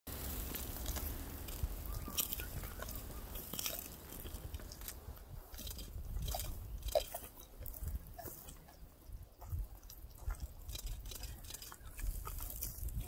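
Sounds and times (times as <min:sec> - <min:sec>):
cheetah chewing and crunching bone: 0:00.1 - 0:13.0.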